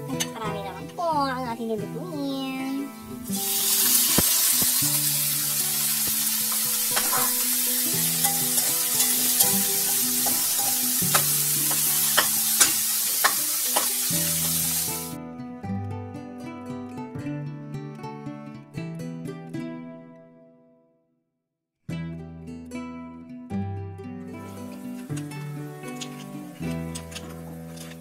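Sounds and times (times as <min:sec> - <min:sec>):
guitar music: 0:00.0 - 0:20.9, 0:21.9 - 0:28.0
meat sizzling in hot oil: 0:03.2 - 0:15.2
metal spoon scraping a pan: 0:06.2 - 0:14.9, 0:24.5 - 0:28.0.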